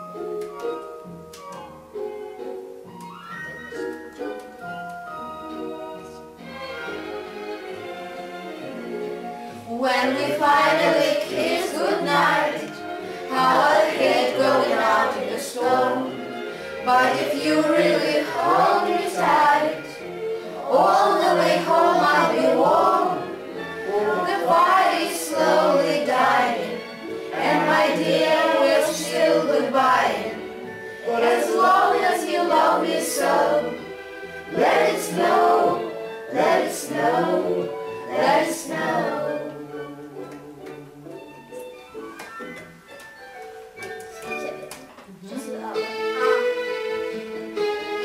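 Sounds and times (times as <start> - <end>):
backing music: 0.0 - 48.0
group of voices singing: 9.6 - 40.9.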